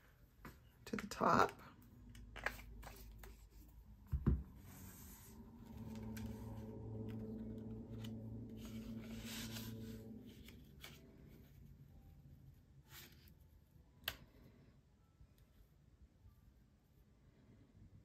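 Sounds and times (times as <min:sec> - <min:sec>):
paper rustling and rubbing: 0:04.6 - 0:11.8.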